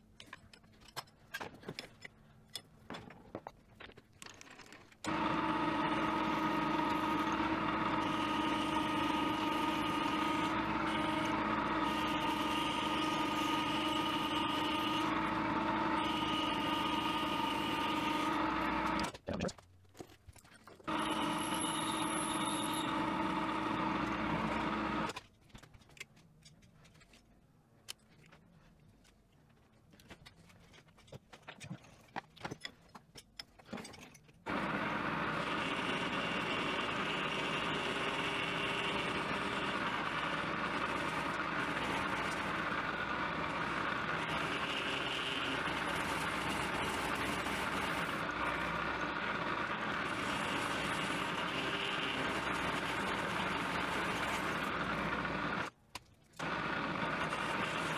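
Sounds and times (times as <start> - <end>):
metal lathe running: 5.1 - 19.1, 20.9 - 25.1, 34.5 - 55.7, 56.4 - 57.9.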